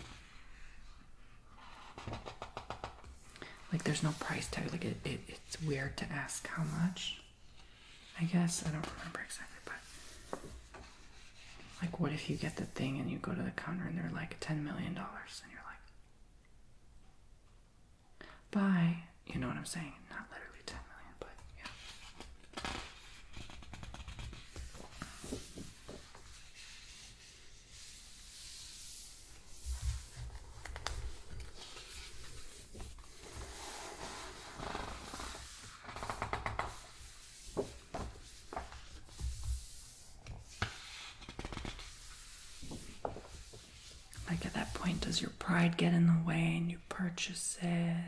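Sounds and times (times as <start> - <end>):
book pages turning: 21.6 - 45.1.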